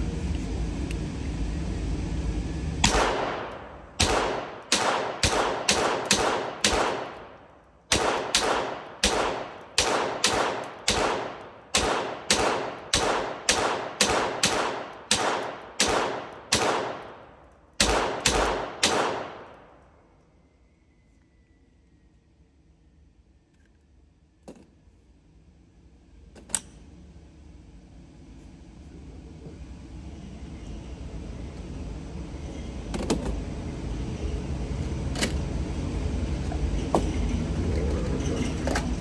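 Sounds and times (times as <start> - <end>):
rifle shots echoing indoors: 2.8 - 19.8.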